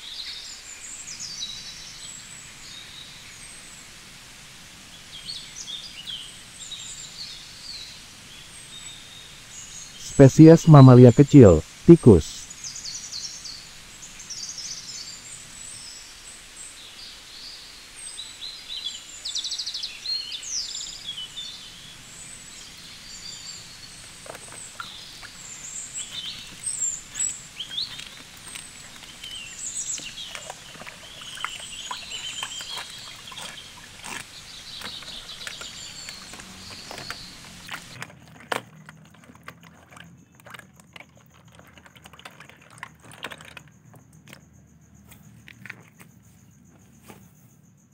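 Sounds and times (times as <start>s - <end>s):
steady background hiss: 0.0s - 31.9s.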